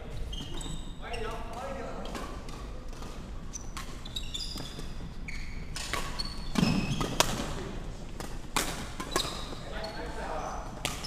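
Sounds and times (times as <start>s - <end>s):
sneakers squeaking on wooden floor: 0.0s - 2.2s, 3.1s - 7.7s, 9.0s - 11.0s
rackets striking shuttlecock: 1.3s - 5.0s, 5.6s - 9.6s, 10.7s - 11.0s.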